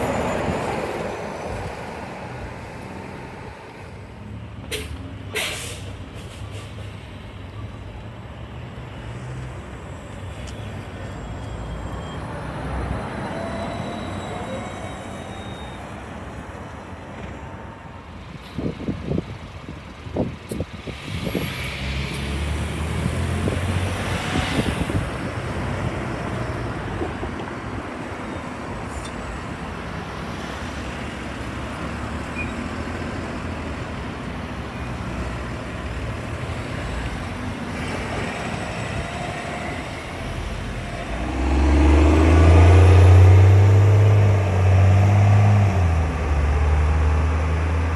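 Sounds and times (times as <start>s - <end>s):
bus engine pulling away: 0.0s - 47.9s
passing traffic hum: 0.0s - 47.9s.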